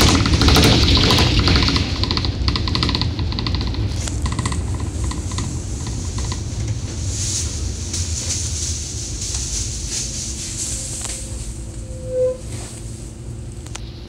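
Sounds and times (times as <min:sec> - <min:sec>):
bus engine low rumble: 0:00.0 - 0:14.0
high hiss: 0:05.3 - 0:13.3.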